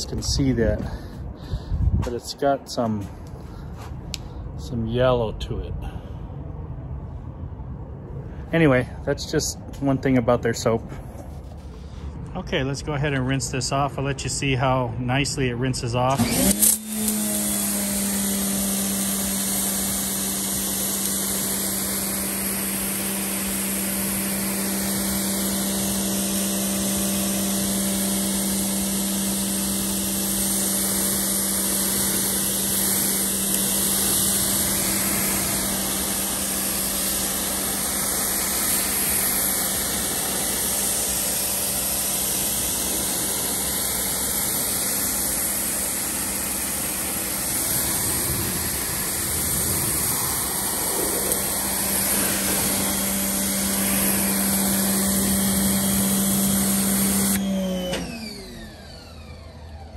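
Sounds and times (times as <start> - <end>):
pressure washer pump hum: 0.0 - 4.6, 8.2 - 59.9
water jet hissing: 16.2 - 57.7.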